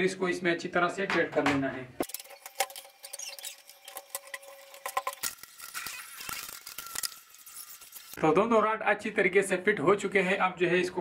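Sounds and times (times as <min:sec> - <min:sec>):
thin squeak: 0:02.9 - 0:04.7.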